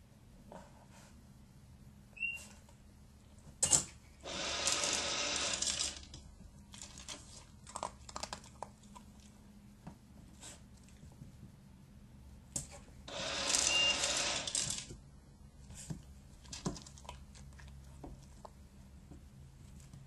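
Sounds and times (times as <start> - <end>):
treat dispenser whirring rattle: 4.2 - 6.2, 13.1 - 14.9.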